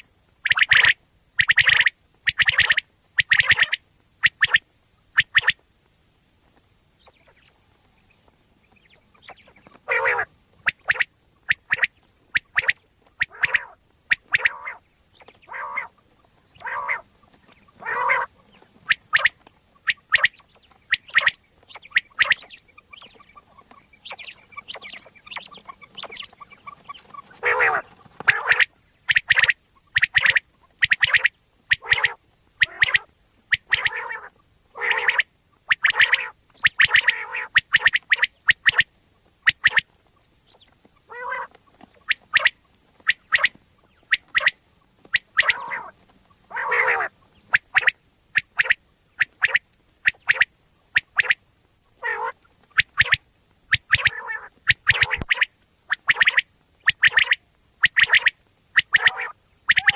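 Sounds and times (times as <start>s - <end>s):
quail calling: 0.0s - 5.6s, 7.0s - 59.9s.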